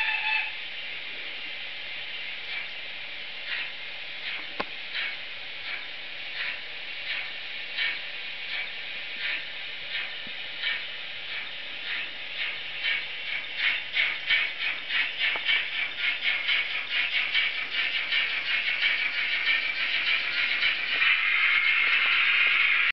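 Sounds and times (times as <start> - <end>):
simulated steam exhaust chuffs: 0.0 - 22.9.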